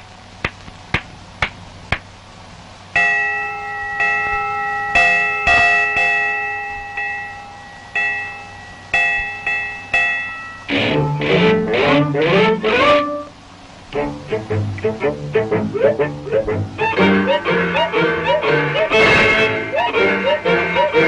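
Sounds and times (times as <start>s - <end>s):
bells or chimes struck: 3.0s - 11.7s.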